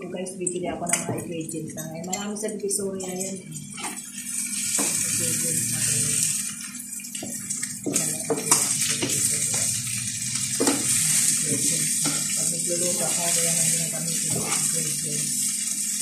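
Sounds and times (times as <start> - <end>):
chicken sizzling in a frying pan: 3.6 - 16.0
spatula and fork scraping a pan: 10.6 - 15.0.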